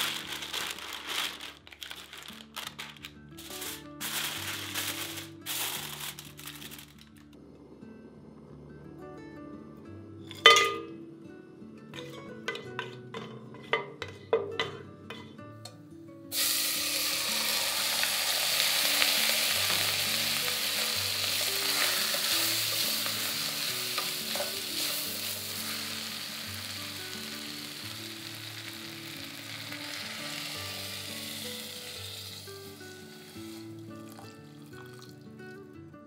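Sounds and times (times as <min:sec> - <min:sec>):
soft background music: 0:00.0 - 0:36.0
rice sizzling in hot oil: 0:03.4 - 0:06.9, 0:16.3 - 0:34.5
water poured into pot: 0:16.3 - 0:27.0, 0:29.1 - 0:35.2.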